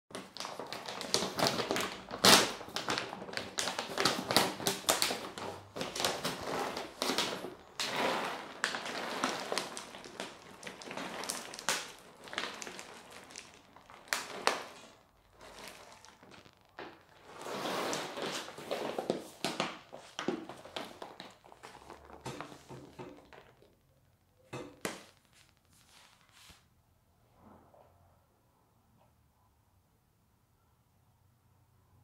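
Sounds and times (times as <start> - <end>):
plastic bag crinkling: 0.1 - 26.6
kibble rattling into a bowl: 5.8 - 16.4.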